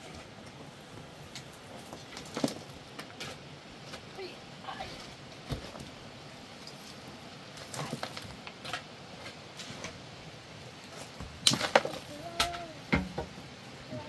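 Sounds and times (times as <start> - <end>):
clattering knocks of stones: 11.2 - 13.4.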